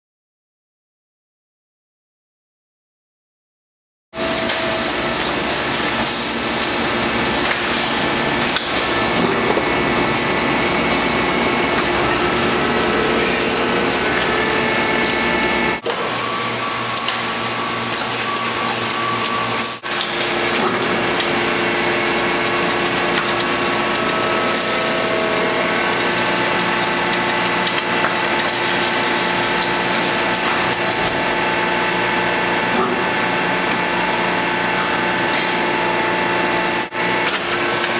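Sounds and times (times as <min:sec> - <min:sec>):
record pressing machine running: 0:04.2 - 0:37.9
constant humming tones: 0:17.9 - 0:35.6.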